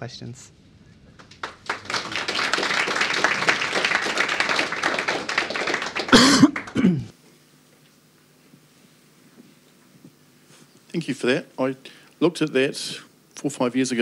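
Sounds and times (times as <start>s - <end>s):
audience applauding: 1.1s - 7.1s.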